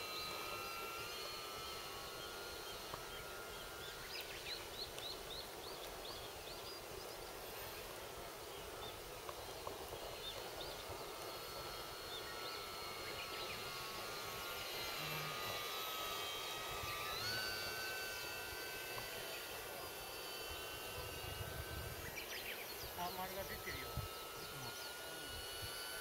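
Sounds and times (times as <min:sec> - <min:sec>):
model plane motor whine: 0:00.0 - 0:26.0
bird chirping: 0:02.1 - 0:07.3, 0:12.1 - 0:14.1.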